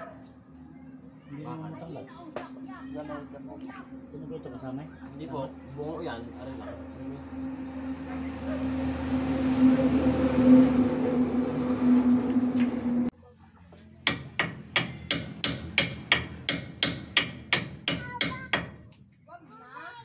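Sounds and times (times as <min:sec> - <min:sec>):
machine hum: 0:00.0 - 0:13.1
hammer striking steel: 0:14.1 - 0:18.8.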